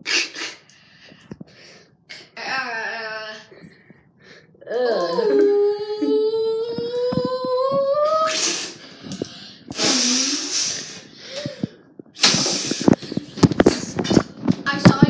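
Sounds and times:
breathy hissing exhalations: 0:00.0 - 0:01.9, 0:08.3 - 0:14.0
child wailing: 0:04.7 - 0:08.8.

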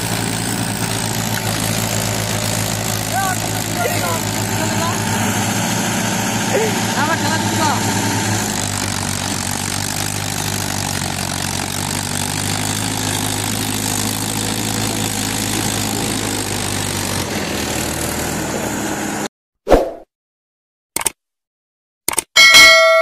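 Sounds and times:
diesel tractor engine running: 0:00.0 - 0:19.3.

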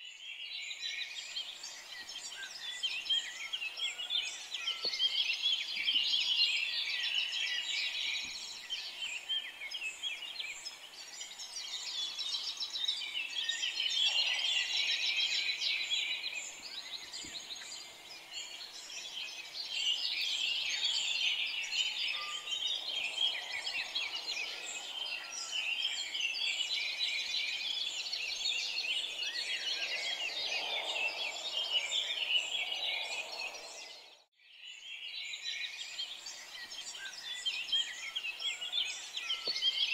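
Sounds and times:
songbirds chirping: 0:00.0 - 0:39.9.

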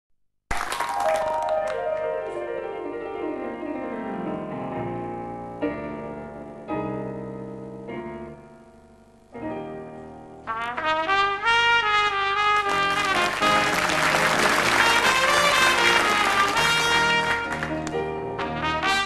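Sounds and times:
piano playing slow chords: 0:01.4 - 0:19.0
trumpet playing held notes: 0:10.5 - 0:19.0.

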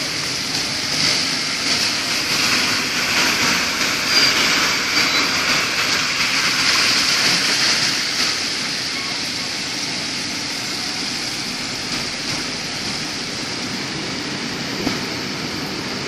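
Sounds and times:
water swishing around wheels: 0:00.0 - 0:16.0
car engine running: 0:08.3 - 0:16.0.

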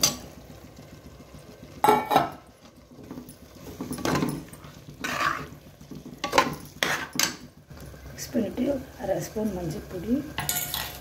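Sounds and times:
spoon clanking on pot: 0:03.8 - 0:05.5, 0:06.2 - 0:07.5, 0:10.4 - 0:11.0
spoon scraping metal pot: 0:04.0 - 0:05.6, 0:06.2 - 0:07.4.

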